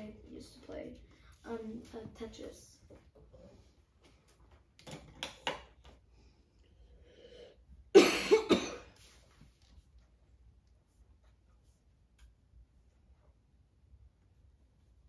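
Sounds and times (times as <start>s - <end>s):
person coughing: 7.9s - 9.0s.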